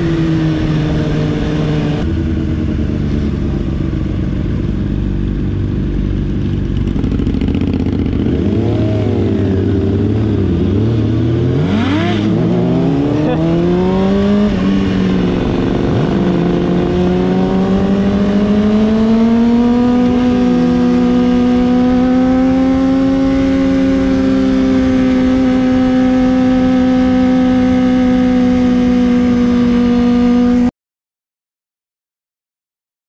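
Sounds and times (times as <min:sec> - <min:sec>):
motorcycle engine cruising: 0:00.0 - 0:30.7
wind rush: 0:07.0 - 0:21.5.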